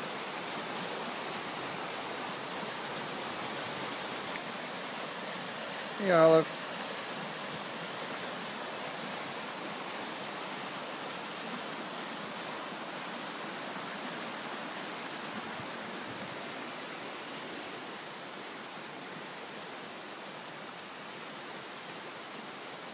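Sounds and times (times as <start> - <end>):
brook rushing over rapids: 0.0 - 22.9.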